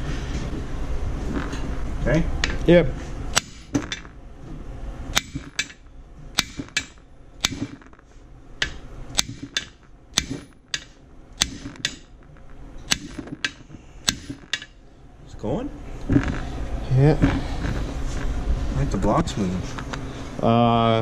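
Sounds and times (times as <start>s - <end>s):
hammer striking metal tool: 3.3s - 4.1s, 5.1s - 8.0s, 8.6s - 12.3s, 12.9s - 14.8s.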